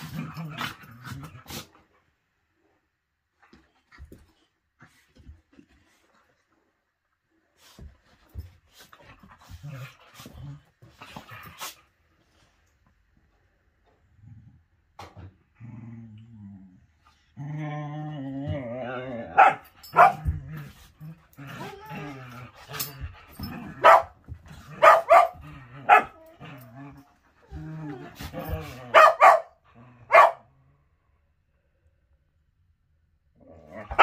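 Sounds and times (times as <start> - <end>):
dogs growling: 15.4 - 29.0, 33.4 - 34.0
dogs barking sharply: 19.4 - 20.2, 23.8 - 24.2, 24.8 - 26.1, 28.9 - 30.4.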